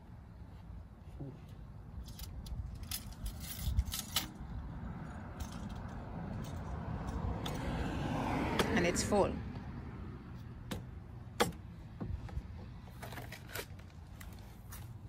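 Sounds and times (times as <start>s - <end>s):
dipstick metallic clicks and rattles: 2.0s - 7.7s
wind rumble on microphone: 2.1s - 8.8s.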